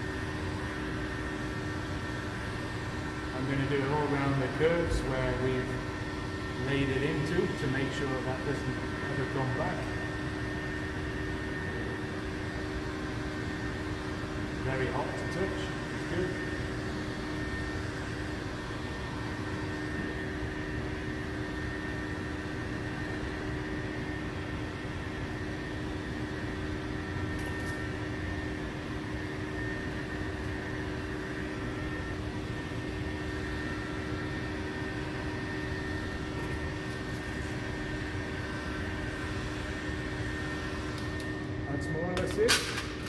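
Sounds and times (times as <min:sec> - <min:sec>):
heat gun blowing air: 0:31.4 - 0:41.5.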